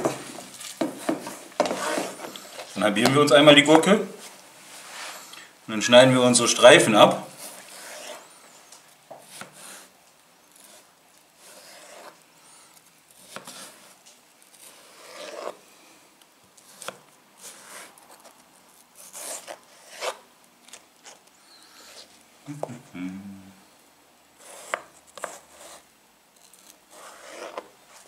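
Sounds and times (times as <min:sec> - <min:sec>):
knife slicing cucumber: 0:13.2 - 0:15.6, 0:16.6 - 0:18.3, 0:24.4 - 0:25.8, 0:26.4 - 0:28.0.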